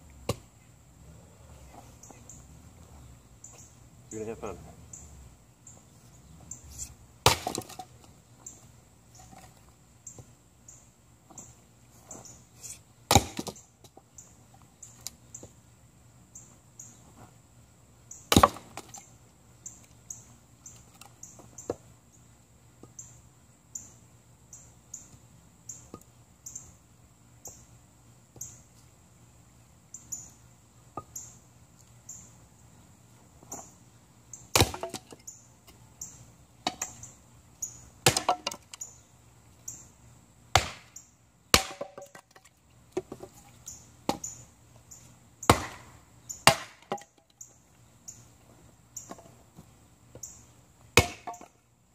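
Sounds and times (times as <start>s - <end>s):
axe chopping wood: 7.2s - 7.9s, 13.1s - 13.6s, 18.3s - 18.9s, 34.5s - 35.2s, 38.0s - 38.6s, 40.5s - 40.9s, 41.5s - 42.2s, 45.5s - 47.2s, 51.0s - 51.5s.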